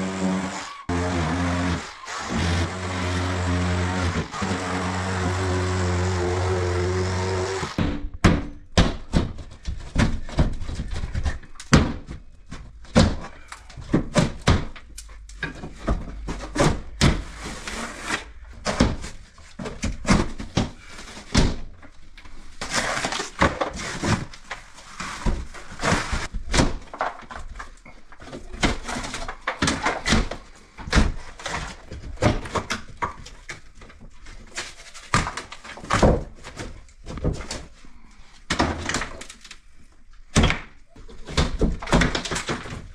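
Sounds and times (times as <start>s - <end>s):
scraping and crumbling: 0.0s - 7.8s
plasterboard cracking and snapping: 25.8s - 37.7s, 38.5s - 39.6s, 40.3s - 42.9s.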